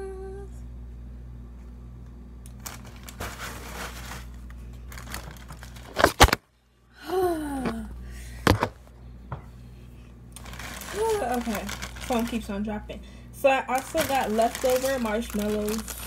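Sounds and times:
plastic bag rustling: 2.6 - 6.4, 10.4 - 12.5, 13.6 - 16.0.

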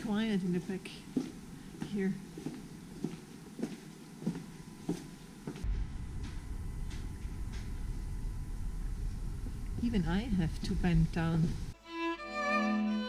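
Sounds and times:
footsteps on stone paving: 0.8 - 5.7
steady low rumble: 4.6 - 11.8.

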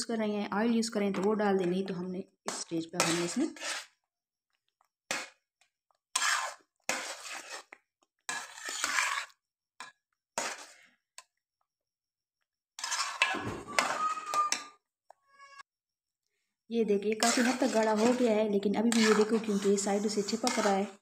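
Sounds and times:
metal spoon scraping a steel pot: 2.5 - 4.0, 6.1 - 9.4, 10.4 - 10.8, 12.8 - 15.6, 17.1 - 21.0.

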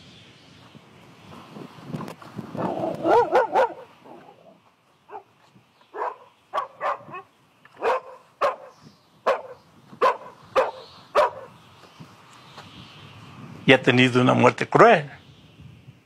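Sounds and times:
dog barking and yelping: 2.6 - 5.3, 5.9 - 11.6.

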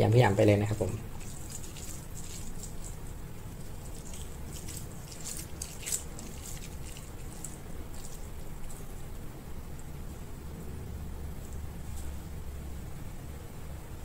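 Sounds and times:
crackles: 0.6 - 10.6
hand squishing bait: 1.2 - 8.9.

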